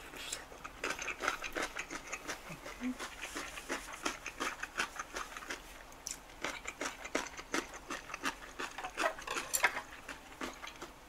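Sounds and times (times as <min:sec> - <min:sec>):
person chewing food: 0:00.0 - 0:11.0.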